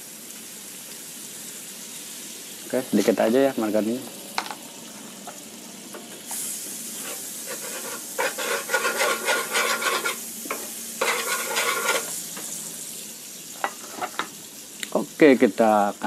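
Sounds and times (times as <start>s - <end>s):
margarine sizzling on griddle: 0.0s - 16.0s
wooden spatula scraping pan: 7.0s - 12.2s.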